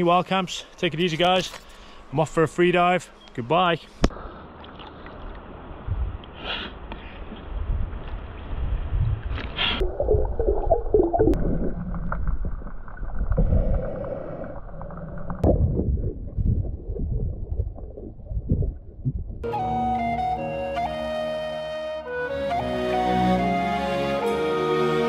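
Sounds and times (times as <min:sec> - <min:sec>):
water gurgling and sloshing: 0:04.3 - 0:06.3, 0:07.4 - 0:19.5.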